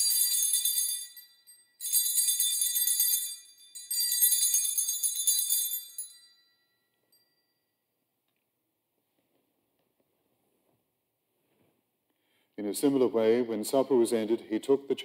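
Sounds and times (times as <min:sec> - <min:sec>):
altar bells jangling: 0:00.0 - 0:07.8.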